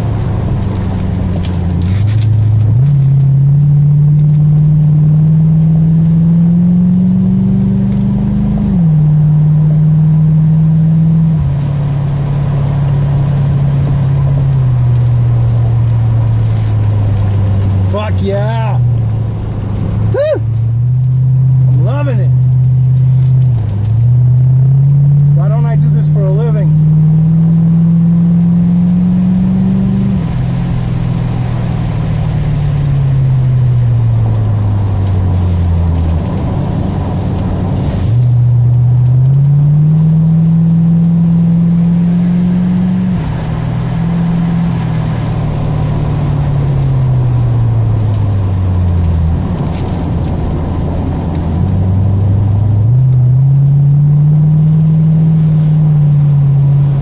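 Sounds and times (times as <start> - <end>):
car engine accelerating: 0.0 - 57.0
tyre and road noise: 0.0 - 57.0.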